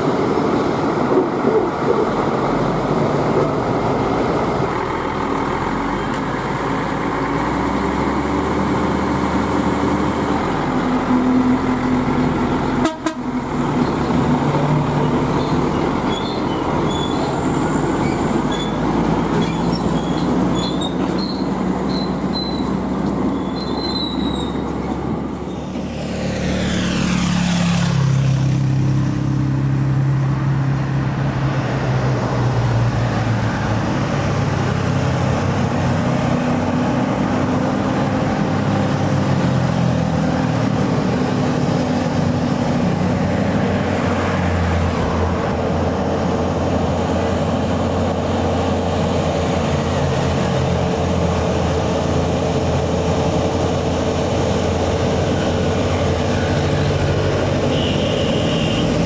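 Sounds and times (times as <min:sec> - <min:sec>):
diesel truck engines running: 0:00.0 - 0:59.0
brief high squeaks: 0:19.4 - 0:22.8, 0:23.4 - 0:24.6
vehicle passing by: 0:24.7 - 0:59.0.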